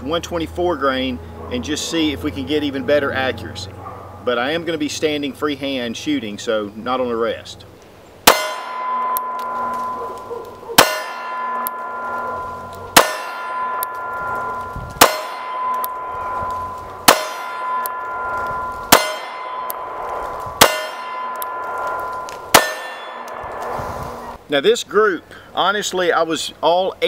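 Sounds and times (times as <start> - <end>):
steel plate target ringing: 8.2 - 24.4
pistol shots: 20.6 - 23.6.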